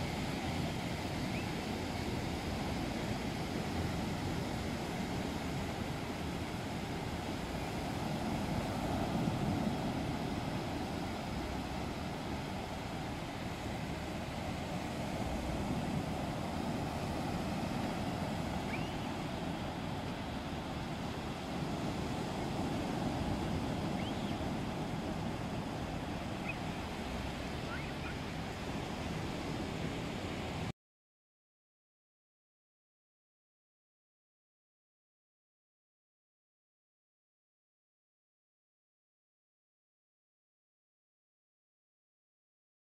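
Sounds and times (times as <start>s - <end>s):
surf breaking on beach: 0.0s - 30.7s
faint high chirps: 18.6s - 19.2s.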